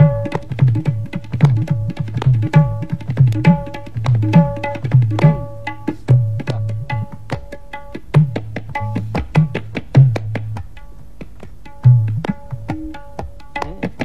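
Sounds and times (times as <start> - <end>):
tabla bass strokes sliding down: 0.0 - 10.9
tabla ringing strokes: 0.0 - 14.0.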